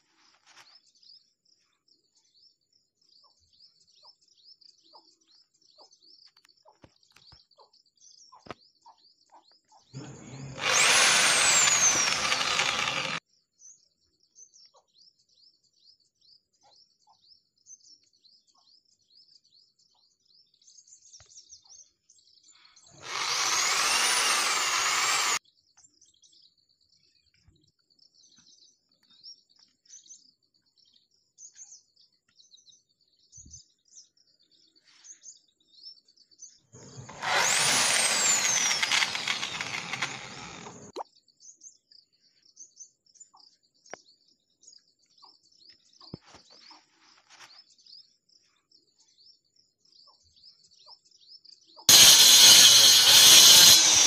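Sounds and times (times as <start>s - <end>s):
electric drill boring plastic: 10.0s - 13.2s, 23.0s - 25.4s, 36.8s - 40.9s, 51.9s - 54.0s.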